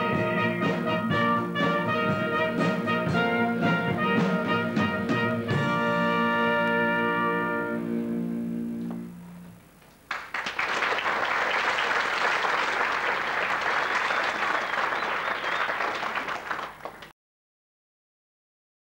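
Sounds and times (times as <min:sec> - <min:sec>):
audience applauding: 0:10.1 - 0:17.1.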